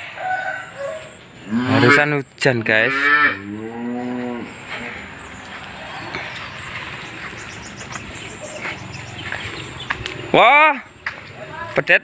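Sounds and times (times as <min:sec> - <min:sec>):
calf mooing: 0:01.4 - 0:02.1, 0:02.8 - 0:04.6.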